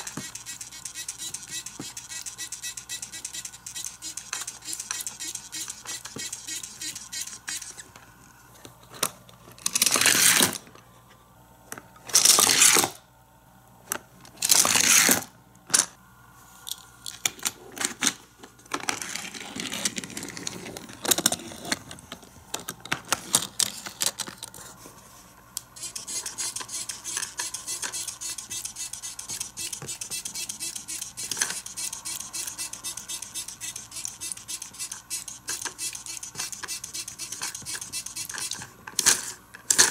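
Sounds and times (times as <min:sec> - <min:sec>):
plastic toy parts clattering: 0:16.7 - 0:24.6, 0:25.8 - 0:39.9.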